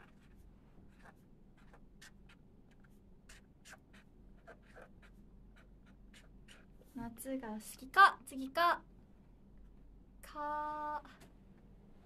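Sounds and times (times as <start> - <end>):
pen writing on paper: 0.0 - 6.8.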